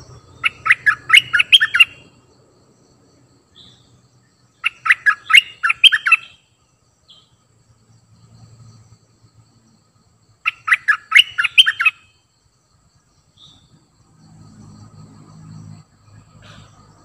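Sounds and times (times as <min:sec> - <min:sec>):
bird singing rapid notes: 0:00.0 - 0:02.2, 0:03.5 - 0:07.5, 0:10.4 - 0:12.3, 0:13.2 - 0:13.9.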